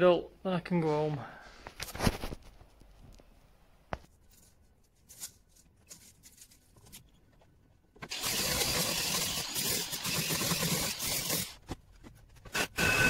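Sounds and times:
power tool running on blockwork: 0:08.0 - 0:11.6, 0:12.5 - 0:13.0.

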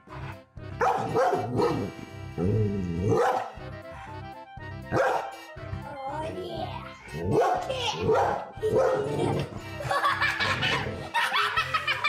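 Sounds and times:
background music with steady beat: 0:00.0 - 0:12.0
dog barking: 0:00.8 - 0:01.9, 0:03.1 - 0:03.6, 0:04.9 - 0:05.3, 0:07.3 - 0:09.1.

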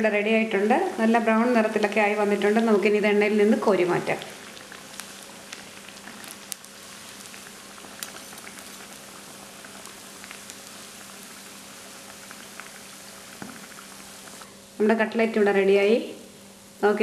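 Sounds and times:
food deep-frying in hot oil: 0:00.0 - 0:17.0
oil pops and crackles: 0:04.1 - 0:14.5.

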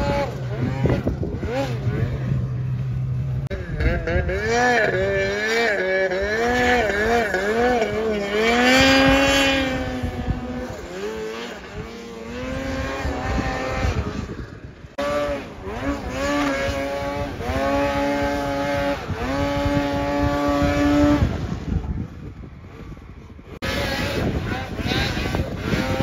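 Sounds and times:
snowmobile engine revving: 0:00.0 - 0:26.0.

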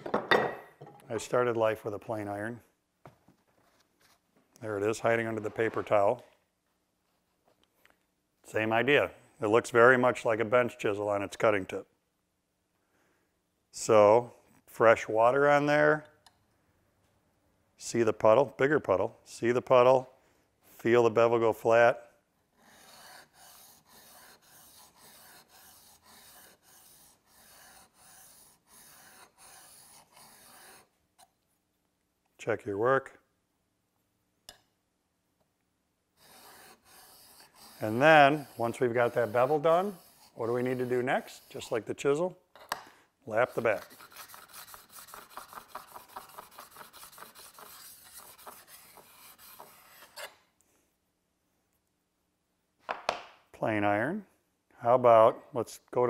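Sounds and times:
blade scraping on sharpening stone: 0:22.6 - 0:30.9, 0:36.2 - 0:41.5.

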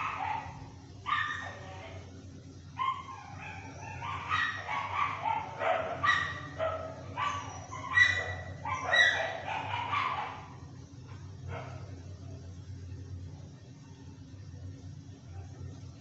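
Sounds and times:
steady low hum: 0:00.0 - 0:16.0
high-pitched animal cries and yips: 0:07.2 - 0:10.6.

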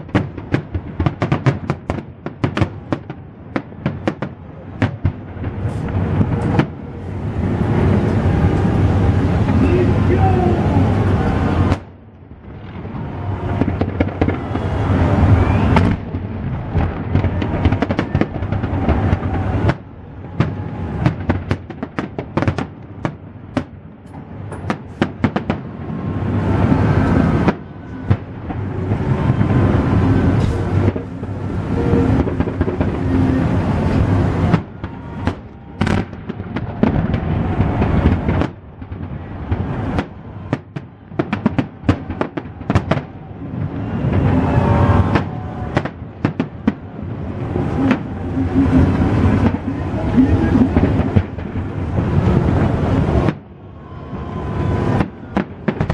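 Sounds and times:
fireworks bangs: 0:00.0 - 0:55.9
low rumble: 0:25.7 - 0:41.1.

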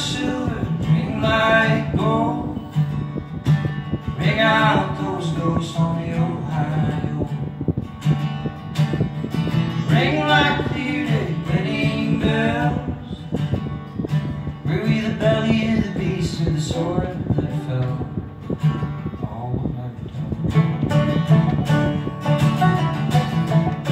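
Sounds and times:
man singing: 0:00.0 - 0:02.7, 0:04.2 - 0:07.5, 0:09.8 - 0:13.4, 0:14.6 - 0:18.2
plucked string instrument: 0:00.0 - 0:23.9
strummed acoustic guitar: 0:00.0 - 0:23.9.

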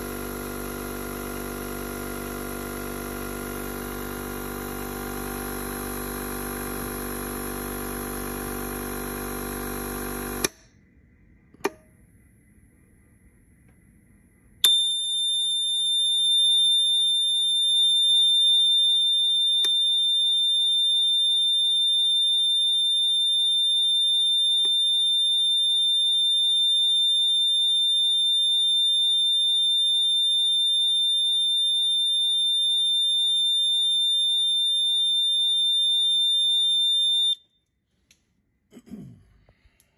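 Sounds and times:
high-pitched electronic buzzer: 0:00.0 - 0:10.5, 0:14.6 - 0:37.4
air compressor motor humming: 0:00.0 - 0:10.6.

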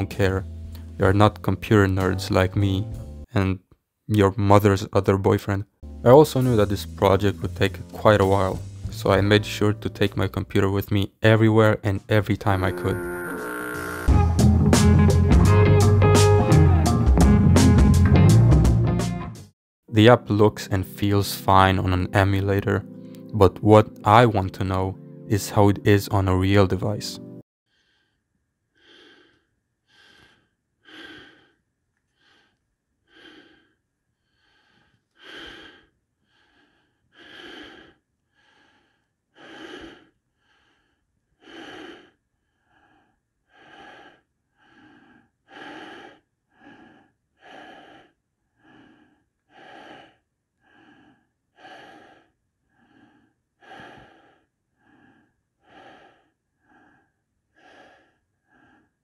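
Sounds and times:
person breathing: 0:27.7 - 0:59.0.

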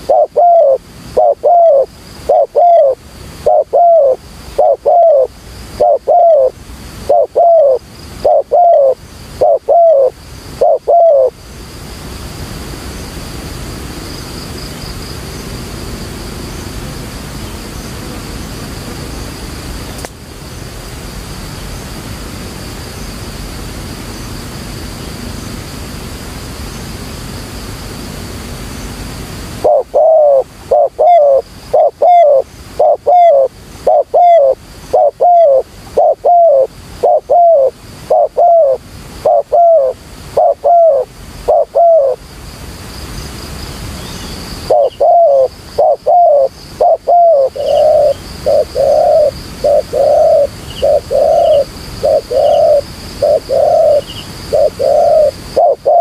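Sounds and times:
dove cooing: 0:00.0 - 0:11.4, 0:29.6 - 0:42.2, 0:44.7 - 0:56.0
steady hiss: 0:00.0 - 0:56.0.

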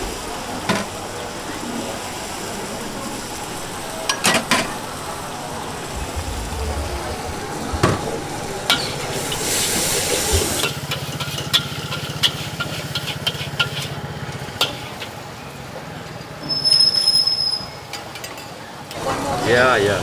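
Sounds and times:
steady low hum: 0:00.0 - 0:10.7
food sizzling in a wok: 0:08.2 - 0:17.5
spatula clacking against wok: 0:10.9 - 0:13.9.

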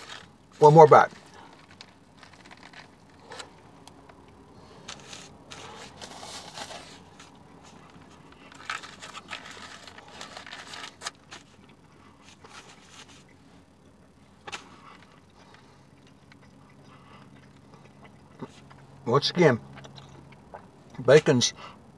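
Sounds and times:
foil wrapper crinkling: 0:00.0 - 0:03.5, 0:04.8 - 0:11.7.

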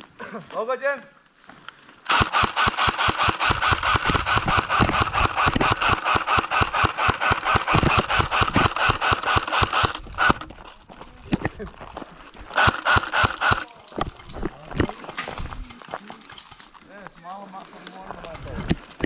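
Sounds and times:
airsoft rifle firing full-auto: 0:02.1 - 0:10.5, 0:12.5 - 0:13.7.

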